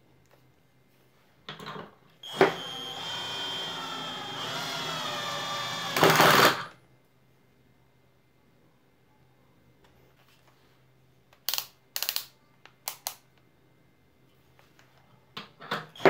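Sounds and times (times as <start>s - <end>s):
cordless drill whining: 2.2s - 6.7s
drill clutch rattling: 2.3s - 6.7s.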